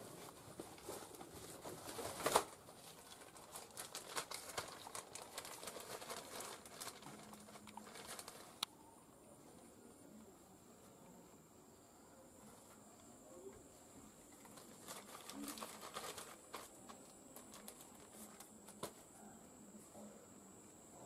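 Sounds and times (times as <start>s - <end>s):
plastic bag crinkling: 0.5s - 8.6s, 14.3s - 18.9s.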